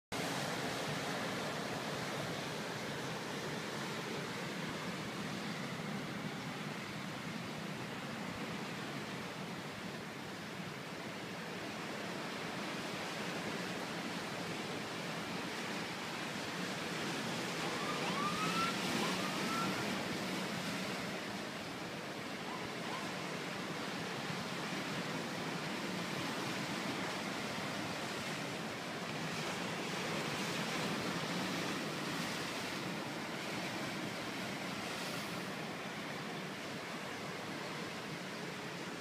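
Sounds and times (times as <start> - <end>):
waves breaking on rocks: 11.2 - 39.0
short rising whistles: 17.6 - 19.9.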